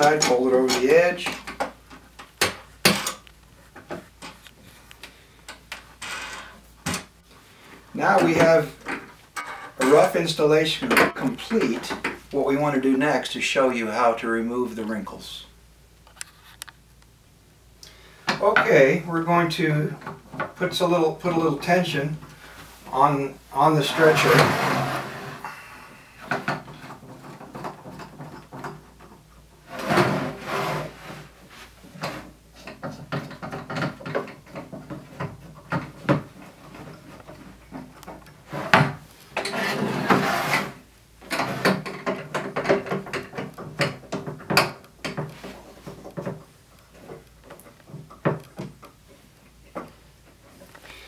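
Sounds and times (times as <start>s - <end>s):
frame scraping against table: 23.8s - 25.5s, 29.6s - 33.0s, 38.4s - 43.2s.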